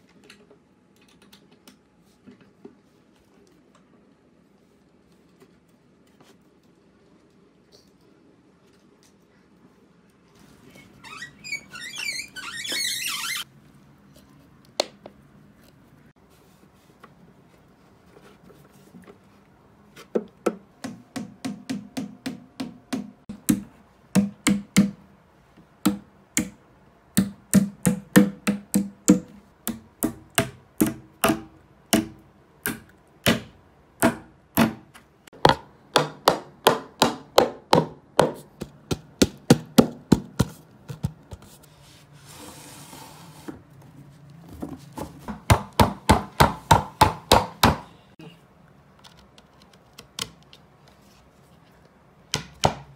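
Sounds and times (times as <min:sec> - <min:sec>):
hammer tapping on wooden panel: 0:20.2 - 0:25.0, 0:27.2 - 0:34.8, 0:35.4 - 0:40.5, 0:45.3 - 0:47.9.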